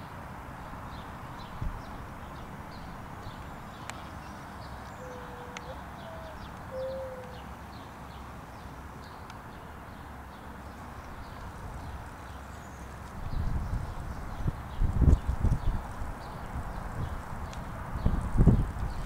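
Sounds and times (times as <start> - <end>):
songbird chirping: 0.9 - 13.8
dove cooing: 5.0 - 7.4.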